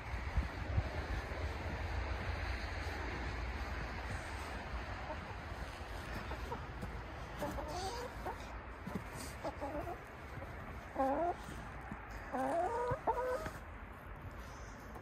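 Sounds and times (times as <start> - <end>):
hens clucking: 3.8 - 15.0.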